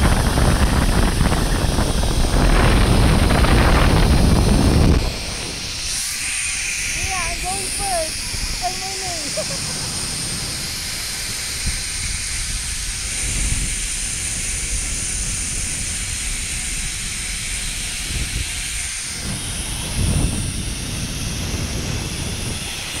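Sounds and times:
pulley whirring on cable: 0.0 - 23.0
wind rushing over microphone: 0.0 - 23.0.

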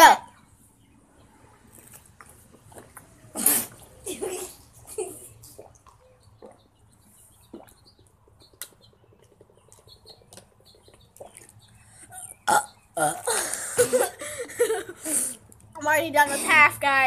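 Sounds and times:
swallowing and gulping: 5.4 - 6.8, 7.4 - 8.2, 9.2 - 13.9
loud burp: 12.1 - 14.1.

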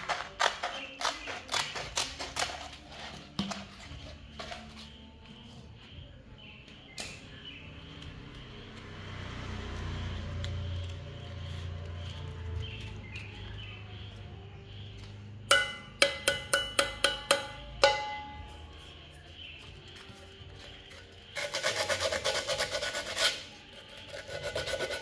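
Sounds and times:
metal mug ringing taps: 15.5 - 18.7.

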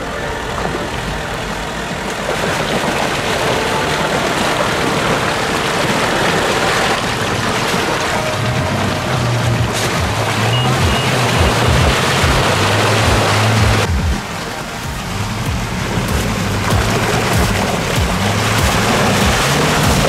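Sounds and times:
dense rushing noise: 0.0 - 20.0
suv engine running: 0.0 - 20.0.

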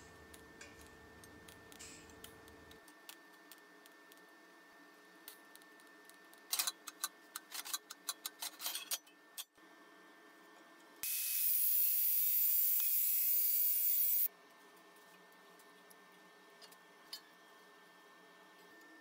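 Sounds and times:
angle grinder cutting steel: 11.0 - 14.3.

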